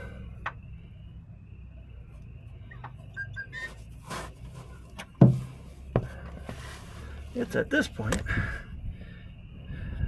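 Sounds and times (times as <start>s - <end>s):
high bird-like chirps: 2.7s - 3.8s.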